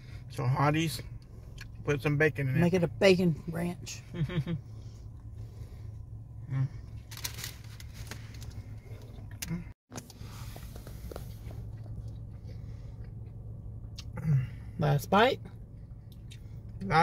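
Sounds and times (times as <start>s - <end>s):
car cabin hum: 0.0s - 17.0s
person chewing: 1.2s - 1.8s, 10.5s - 14.2s
wrapper crinkling: 7.0s - 8.6s.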